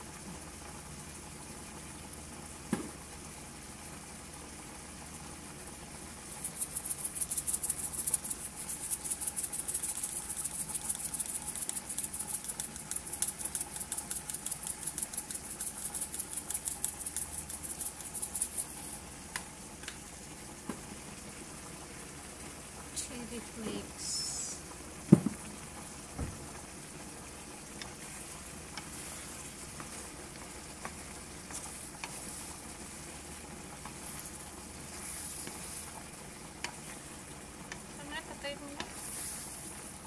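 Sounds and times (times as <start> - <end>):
shrimp sizzling in frying pan: 2.5 - 40.0
spice shaker rattling: 6.3 - 19.0
knock: 25.1 - 25.4.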